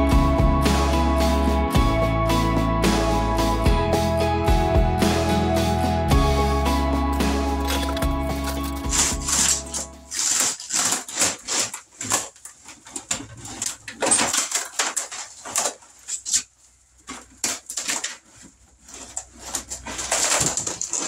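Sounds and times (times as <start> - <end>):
wood paneling cracking and snapping: 7.5 - 21.0.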